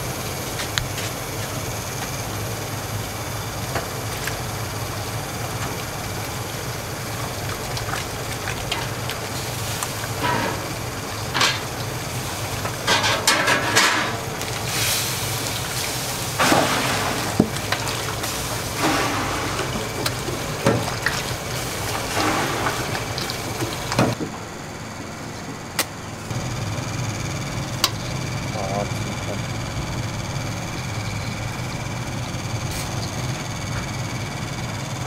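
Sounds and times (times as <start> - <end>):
steady low hum: 0.0 - 35.0
liquid splashing: 4.0 - 13.2, 14.2 - 24.2.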